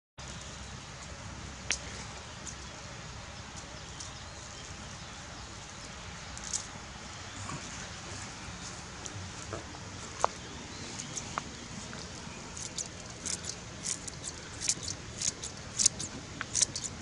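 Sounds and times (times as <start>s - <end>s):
scissors snipping green onions: 12.6s - 17.0s.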